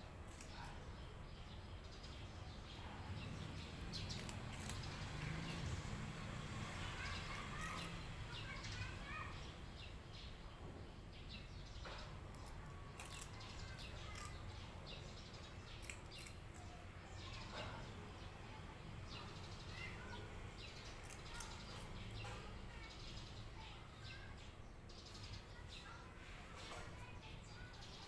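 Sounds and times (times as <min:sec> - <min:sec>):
faint bird chirping: 0:00.0 - 0:28.0
cat crunching dry snacks: 0:04.0 - 0:08.1, 0:12.3 - 0:14.6, 0:15.6 - 0:16.9, 0:20.7 - 0:22.0.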